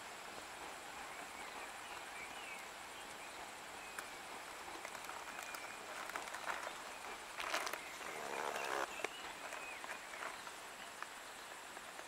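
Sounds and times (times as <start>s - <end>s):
steady hiss: 0.0s - 12.0s
bird chirps: 1.0s - 4.4s, 5.2s - 11.0s.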